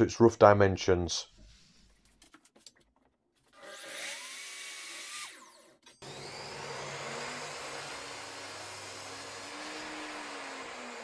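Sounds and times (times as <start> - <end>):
saw blade cutting wood board: 3.6 - 11.0
mitre saw motor whine: 6.0 - 11.0.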